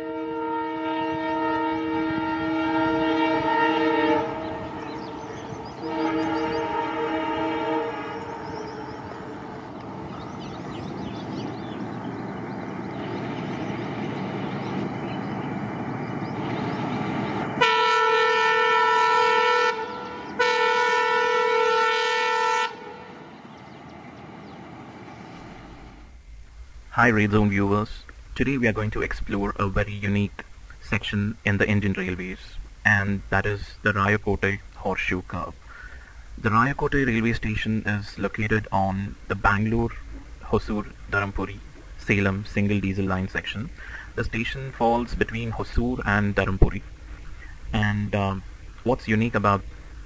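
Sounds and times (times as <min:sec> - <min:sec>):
diesel locomotive horn blasts: 0:00.0 - 0:10.4, 0:17.2 - 0:23.4
train running rumble: 0:01.2 - 0:19.2, 0:19.8 - 0:50.0.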